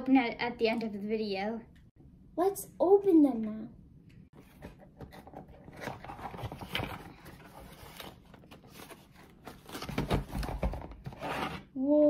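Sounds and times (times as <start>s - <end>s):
cardboard box scraping and rustling: 5.6s - 11.7s.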